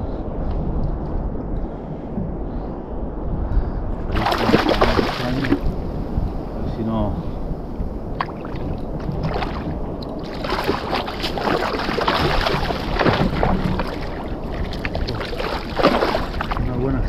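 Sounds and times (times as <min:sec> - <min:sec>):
wind on microphone: 0:00.0 - 0:17.0
water splashing and sloshing: 0:04.1 - 0:06.8, 0:07.4 - 0:17.0.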